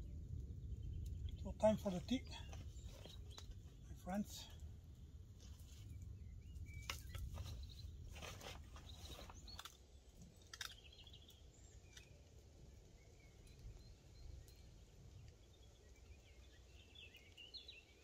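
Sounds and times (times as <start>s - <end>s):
small clicks and knocks: 6.8s - 12.2s.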